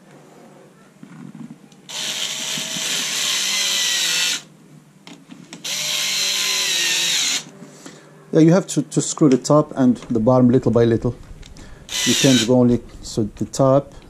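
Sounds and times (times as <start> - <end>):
cordless screwdriver whirring: 1.9 - 4.5, 5.6 - 7.5, 11.9 - 12.6.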